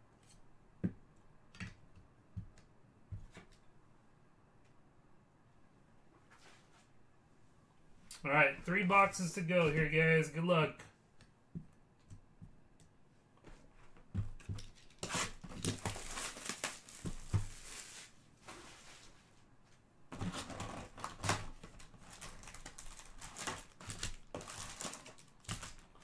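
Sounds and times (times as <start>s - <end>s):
plastic wrap tearing and crinkling: 14.7s - 18.2s, 20.2s - 26.0s.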